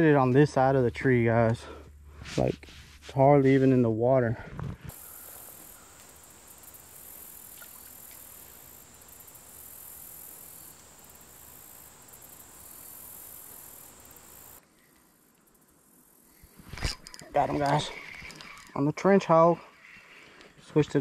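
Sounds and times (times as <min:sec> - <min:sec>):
soft outdoor hiss: 0:00.0 - 0:21.0
insects chorus high-pitched: 0:04.9 - 0:18.9.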